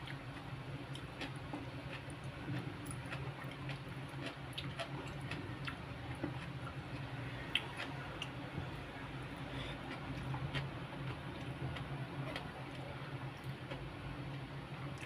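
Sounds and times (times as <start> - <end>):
chewing and eating clicks: 0.0 - 6.8
steady low hum: 0.0 - 15.0.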